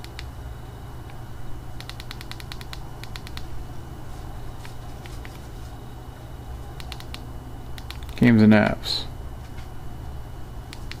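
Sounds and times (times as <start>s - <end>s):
steady low hum: 0.0s - 11.0s
phone keys clicking: 1.8s - 3.5s, 6.8s - 7.2s, 7.8s - 8.2s.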